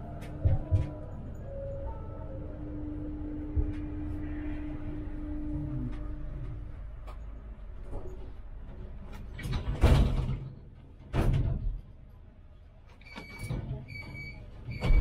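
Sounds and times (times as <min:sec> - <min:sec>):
tram doors moving: 0:00.0 - 0:15.0
door-closing warning beeps: 0:13.0 - 0:15.0.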